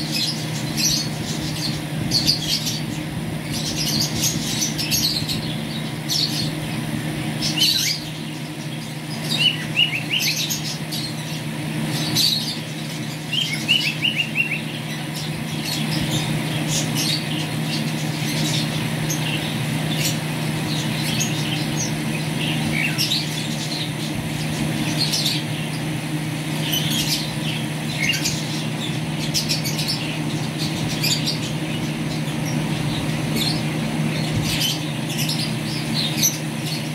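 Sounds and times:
finches chirping: 0.0s - 36.9s
steady low hum: 0.0s - 36.9s.

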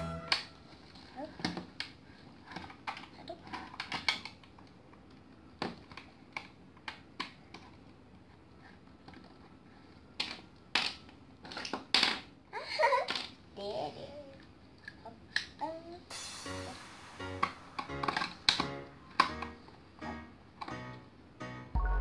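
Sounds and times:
plastic toy parts clicking: 1.4s - 7.9s, 10.1s - 12.4s.

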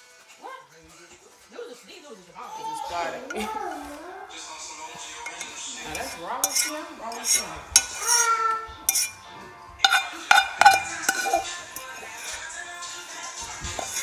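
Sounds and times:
utensil scraping metal pot: 5.0s - 14.0s.

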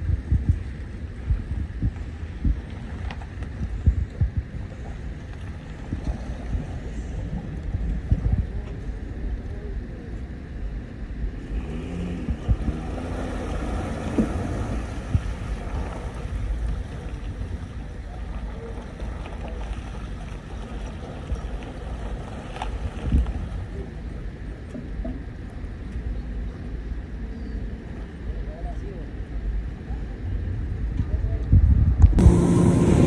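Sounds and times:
wind buffeting microphone: 0.0s - 9.6s, 11.3s - 23.9s, 30.0s - 33.0s
outboard motor running: 0.0s - 31.4s, 32.2s - 33.0s
propeller churning water: 0.0s - 33.0s.

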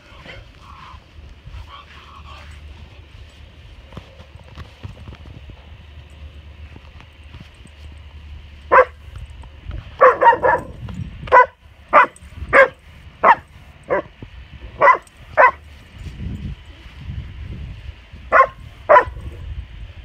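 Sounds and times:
dog barking: 8.7s - 9.0s, 10.0s - 14.1s, 14.8s - 15.6s, 18.3s - 19.2s.

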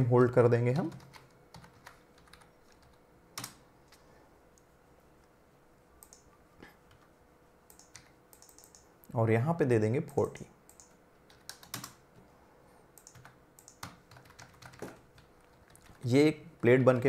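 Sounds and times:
computer keyboard and mouse clicks: 0.9s - 4.0s, 6.0s - 6.3s, 7.7s - 8.9s, 10.7s - 12.0s, 13.0s - 16.0s.

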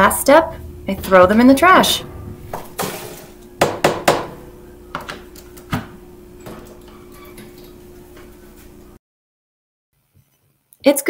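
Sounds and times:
low knock: 1.8s - 5.1s.

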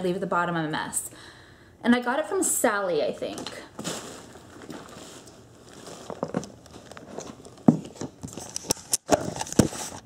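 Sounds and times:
clothing rustling: 3.6s - 10.0s.

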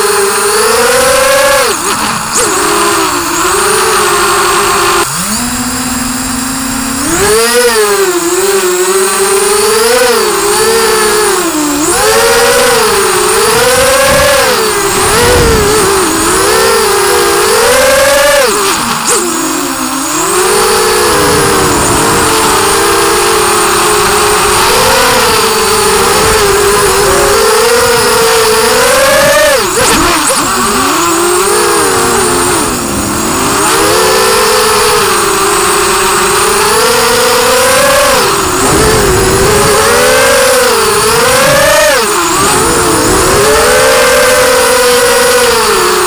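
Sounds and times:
quadcopter motors whining: 0.0s - 46.0s.

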